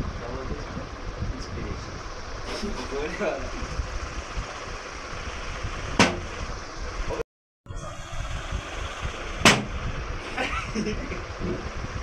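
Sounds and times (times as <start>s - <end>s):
plastic bottle landing smack: 9.5s - 9.7s.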